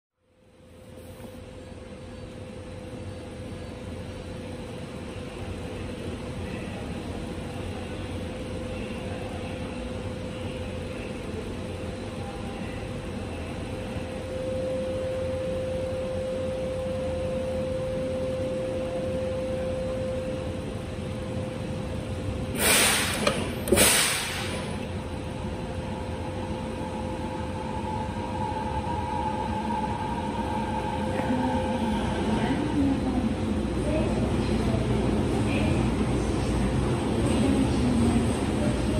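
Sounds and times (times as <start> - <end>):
train car hum: 0.1 - 38.9
compressed air hisses: 22.6 - 24.5.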